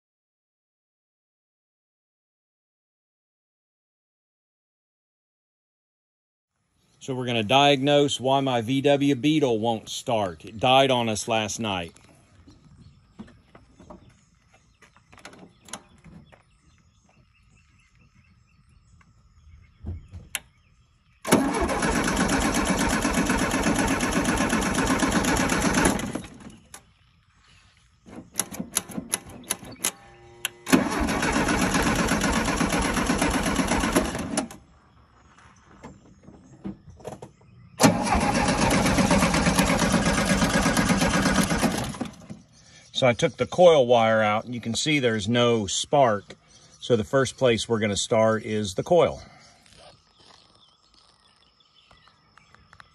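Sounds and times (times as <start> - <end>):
engine cranking on starter: 21.2 - 26.9, 28.1 - 34.6, 37.8 - 42.5.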